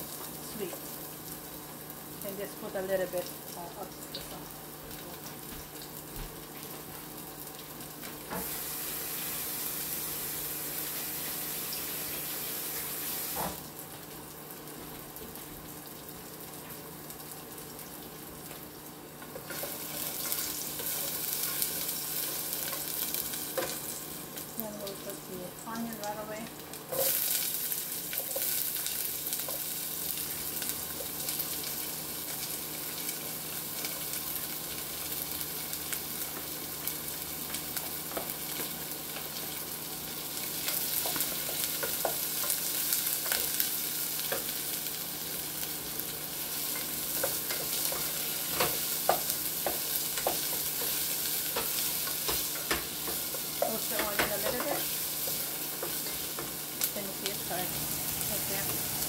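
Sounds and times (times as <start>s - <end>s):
onions sizzling in a pot: 0.0s - 59.0s.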